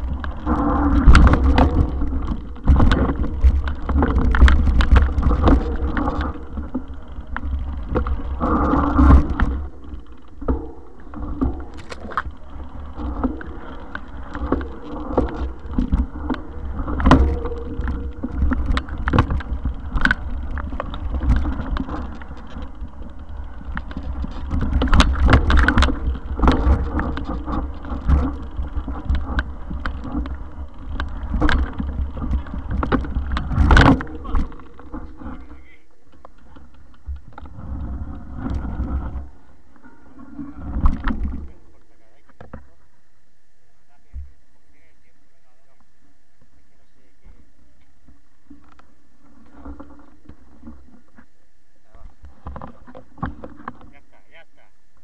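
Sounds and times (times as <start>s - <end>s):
bike rattling over bumps: 0.0s - 42.8s, 47.0s - 55.0s
wind and trail rumble: 0.0s - 43.2s.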